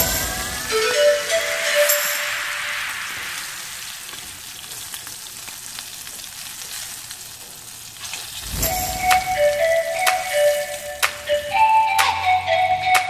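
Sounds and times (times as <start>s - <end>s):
background music: 0.0s - 3.8s, 8.5s - 13.0s
prawns sizzling in oil: 0.1s - 11.2s.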